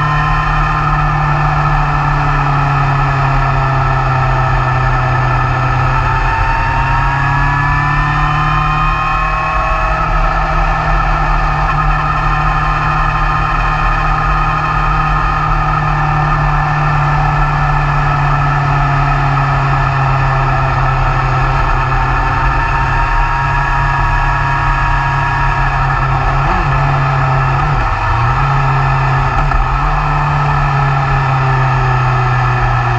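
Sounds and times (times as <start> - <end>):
motorcycle engine accelerating: 0.0 - 32.9
wind and road noise: 0.0 - 32.9.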